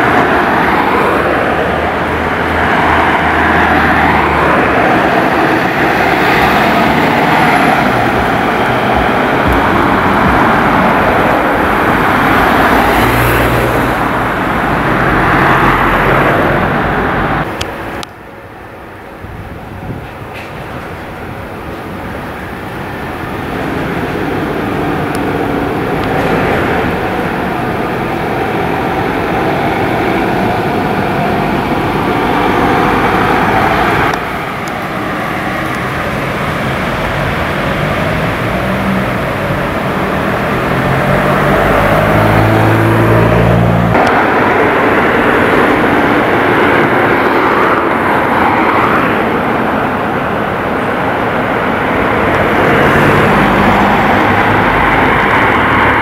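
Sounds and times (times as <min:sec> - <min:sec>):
ambulance driving off: 0:00.0 - 0:56.0
road traffic noise: 0:00.0 - 0:56.0.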